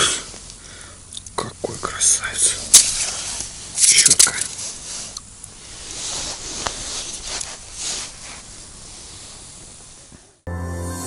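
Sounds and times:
clothing rustling near microphone: 2.4 - 10.4.

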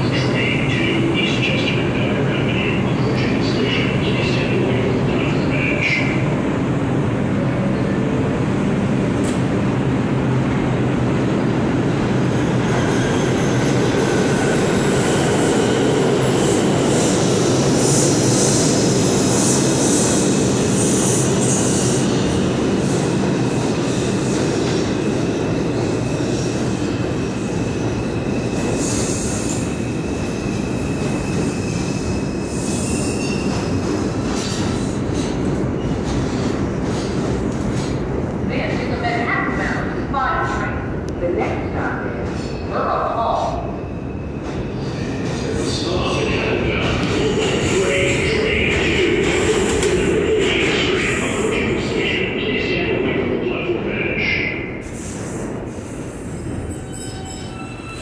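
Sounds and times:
train wheels rumbling on rail: 0.0 - 58.0
high wheel squeal: 56.3 - 58.0.

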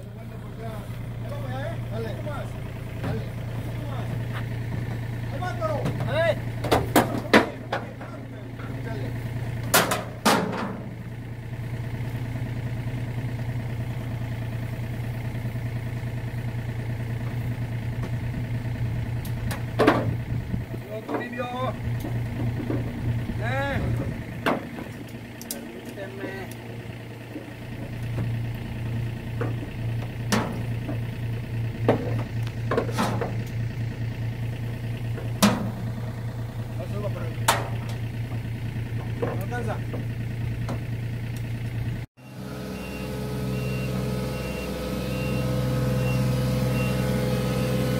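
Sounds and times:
diesel engine running: 0.0 - 47.9
metal box clanking: 9.7 - 10.9, 29.4 - 31.0, 31.8 - 33.5, 35.2 - 35.8, 37.4 - 40.0.

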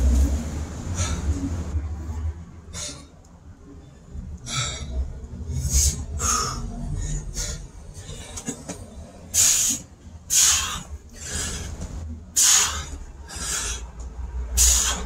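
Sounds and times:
man breathing hard: 0.7 - 1.7, 2.7 - 3.2, 4.4 - 8.4, 9.3 - 15.0.

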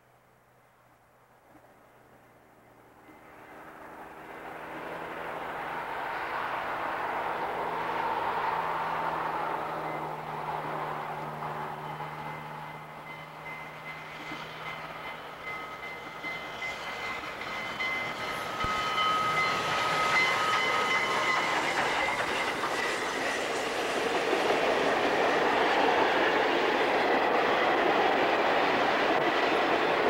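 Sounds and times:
train wheels clacking over rail joints: 8.7 - 30.0.

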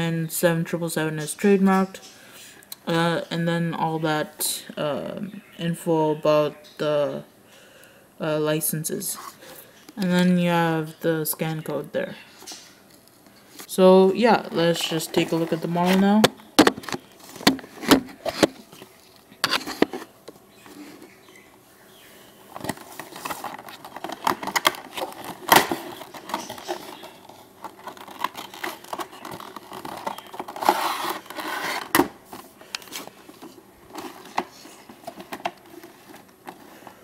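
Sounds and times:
plastic packaging rustling: 12.3 - 21.4, 22.4 - 37.0
cardboard box scraping: 27.8 - 32.0.

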